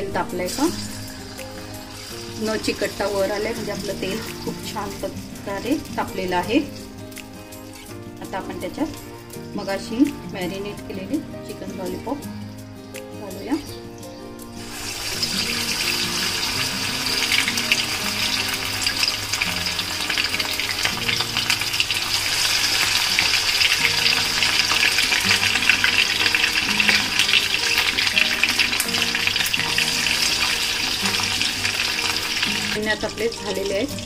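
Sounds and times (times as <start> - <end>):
background music: 0.0 - 34.0
deep-frying crackling sizzle: 0.0 - 34.0.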